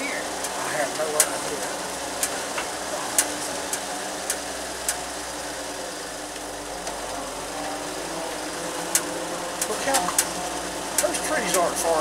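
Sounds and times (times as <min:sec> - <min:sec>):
car engine idling: 0:00.0 - 0:12.0
sharp clicks: 0:08.9 - 0:10.4.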